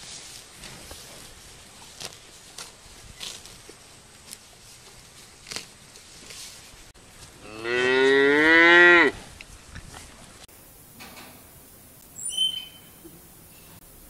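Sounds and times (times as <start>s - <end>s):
cow mooing: 7.4s - 9.2s.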